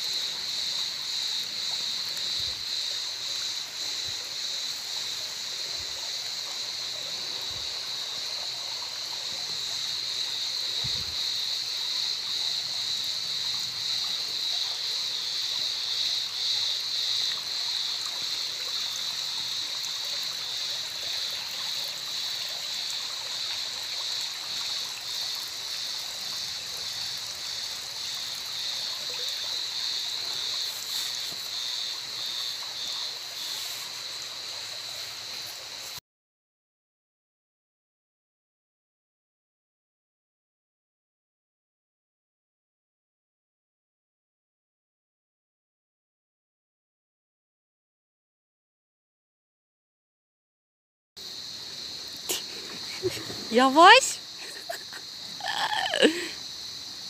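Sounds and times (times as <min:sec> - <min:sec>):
stream trickling over rocks: 0:00.0 - 0:36.0, 0:51.2 - 0:57.0.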